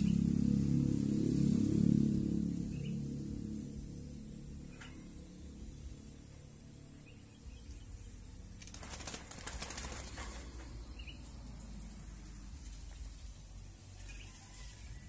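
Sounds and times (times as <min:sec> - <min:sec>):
dove flapping wings: 0:08.6 - 0:10.8.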